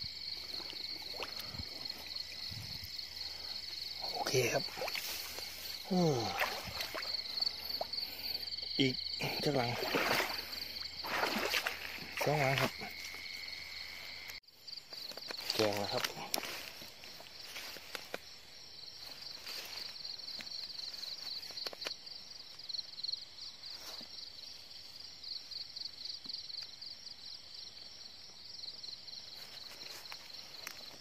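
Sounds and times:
insects chirping: 0.0 - 31.0
rustling in grass: 4.6 - 7.6, 15.0 - 18.2, 19.0 - 20.0.

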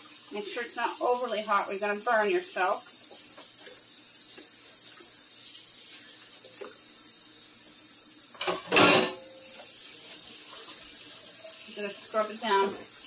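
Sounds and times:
faucet running into steel sink: 0.0 - 13.0
cookware clattering against sink: 8.4 - 9.4.

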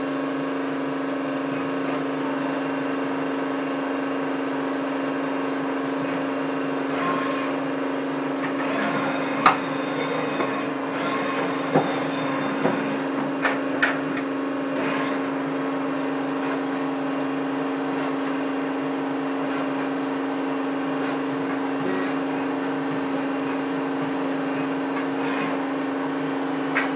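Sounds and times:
lathe humming: 8.4 - 13.4.

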